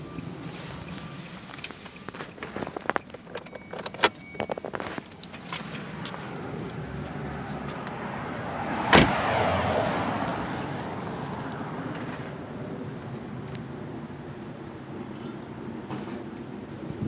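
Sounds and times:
street traffic noise: 0:00.0 - 0:17.0
metallic jingling and clicks: 0:00.8 - 0:08.8
car door slamming: 0:08.5 - 0:10.2.

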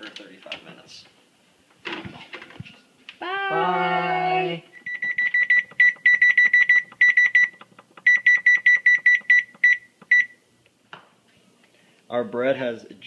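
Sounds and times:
oven control panel beeping: 0:04.8 - 0:10.4.

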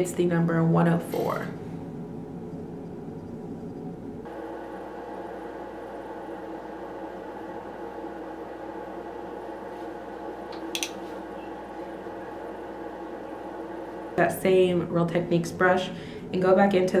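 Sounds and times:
low room hum: 0:00.0 - 0:17.0
makeup brushes clicking: 0:10.5 - 0:11.0.

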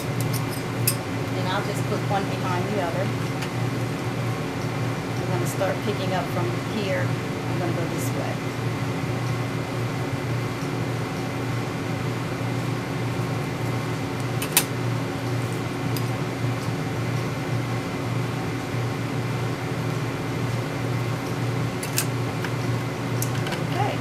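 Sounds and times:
mechanical hum with fan whir: 0:00.0 - 0:24.0.

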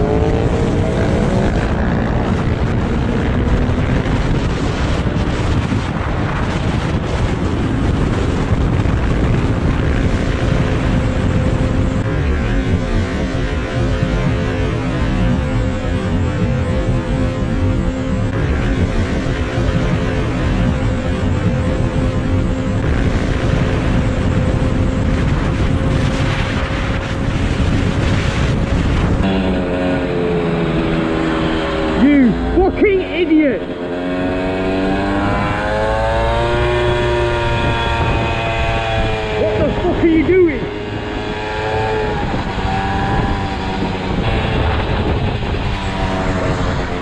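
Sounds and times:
motorcycle engine drone: 0:00.0 - 0:47.0
wind buffeting microphone: 0:00.0 - 0:47.0
scooter engine hum: 0:13.8 - 0:47.0.

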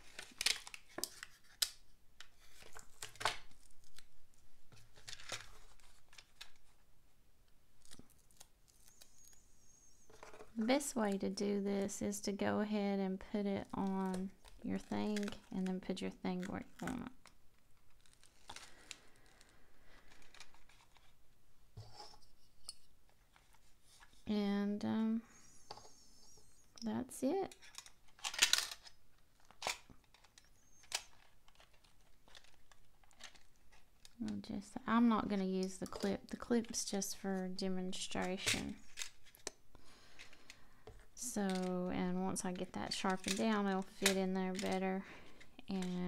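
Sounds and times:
plastic packaging crinkling: 0:00.0 - 0:01.8, 0:02.4 - 0:06.8, 0:13.6 - 0:21.2, 0:27.6 - 0:34.7, 0:41.2 - 0:46.0.

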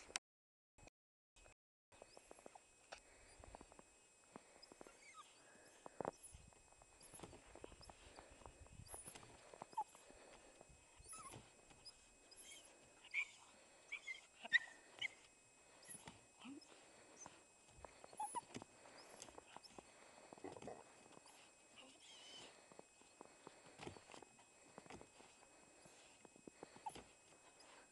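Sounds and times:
crackles of movement in snow: 0:02.0 - 0:13.9, 0:14.8 - 0:27.9
puppy whimpering: 0:04.6 - 0:06.4, 0:07.0 - 0:10.3, 0:11.0 - 0:22.7, 0:24.8 - 0:27.9.

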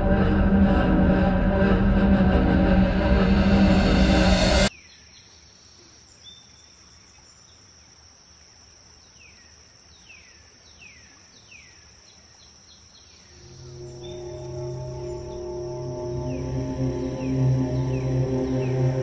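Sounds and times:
background music: 0:00.0 - 0:04.7, 0:13.4 - 0:19.0
high-pitched insect drone: 0:13.4 - 0:19.0.

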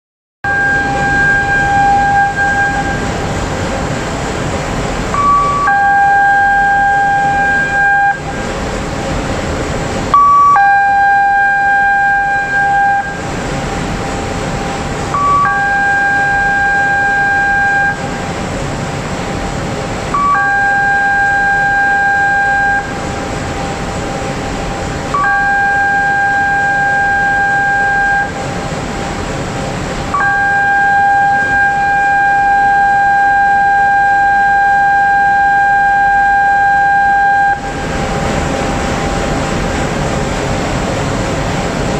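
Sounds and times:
alarm horn beep and long tone: 0:00.4 - 0:08.7, 0:10.1 - 0:18.5, 0:20.0 - 0:23.8, 0:25.1 - 0:28.6, 0:30.1 - 0:39.4.

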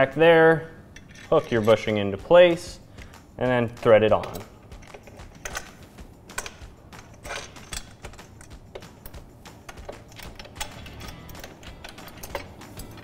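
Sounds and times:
metallic clicks of bolt and washer: 0:04.1 - 0:13.0.

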